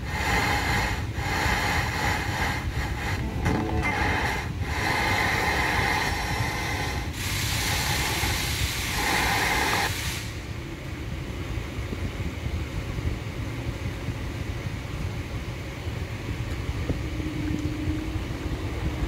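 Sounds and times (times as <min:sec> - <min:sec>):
low steady rumble: 0:00.0 - 0:19.0
car radio playing: 0:03.2 - 0:04.4.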